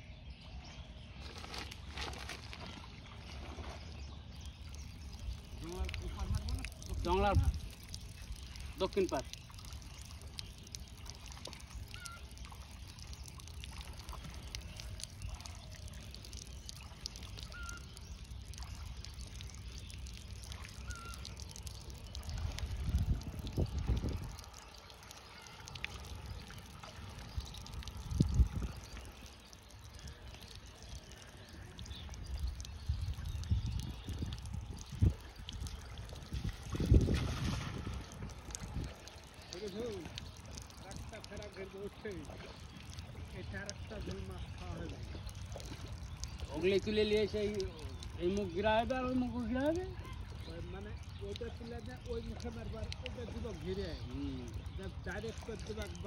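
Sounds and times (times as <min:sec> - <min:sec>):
water sloshing and trickling: 0:00.0 - 0:56.0
bird chirps: 0:03.4 - 0:22.9, 0:38.9 - 0:56.0
low rumbles: 0:04.4 - 0:49.4.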